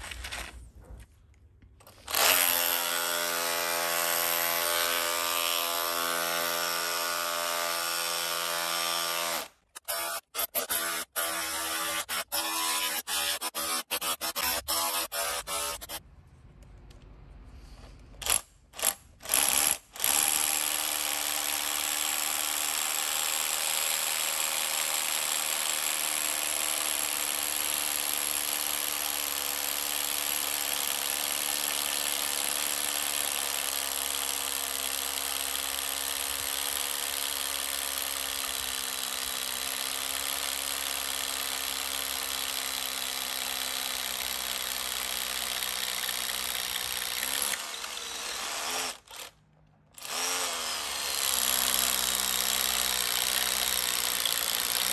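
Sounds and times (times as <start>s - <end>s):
rotary hammer drilling: 1.8s - 16.0s, 18.2s - 54.9s.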